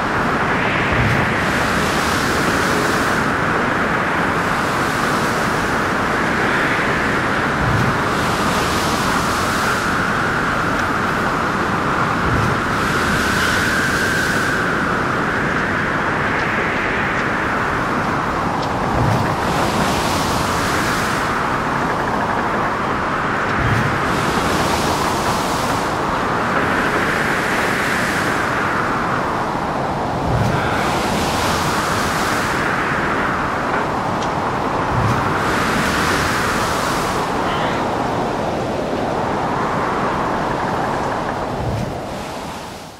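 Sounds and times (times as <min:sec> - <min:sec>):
strong wind: 0:00.0 - 0:42.9
rough water surging: 0:17.5 - 0:42.9.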